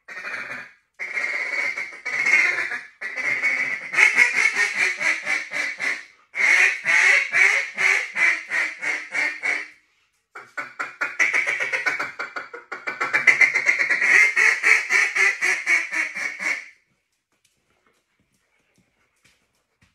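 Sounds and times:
duck call rapid quacks: 0.0 - 9.7, 10.4 - 16.7.

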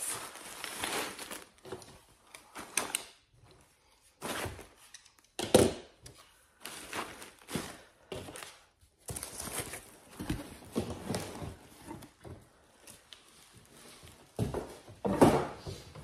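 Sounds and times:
cardboard boxes knocking and thudding: 7.4 - 12.4, 14.4 - 16.0.

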